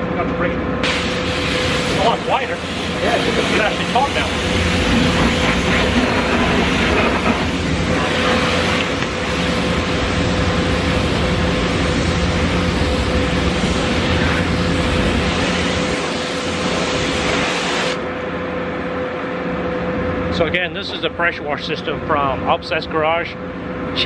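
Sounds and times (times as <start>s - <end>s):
pressure washer spraying water: 0.8s - 18.0s.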